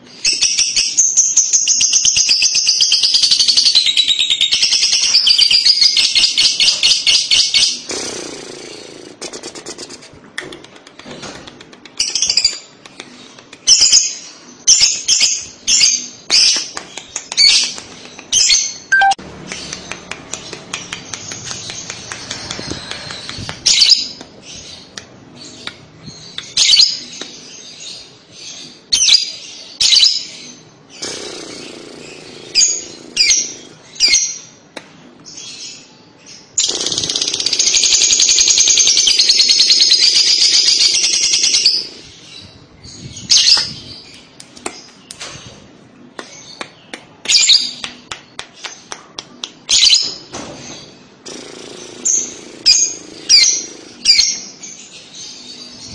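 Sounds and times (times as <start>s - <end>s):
bird rapid chatter: 4.6s - 14.0s, 16.3s - 25.0s, 31.0s - 33.8s, 36.6s - 42.1s, 49.7s - 54.6s
bird sharp high chirps: 18.4s - 25.0s.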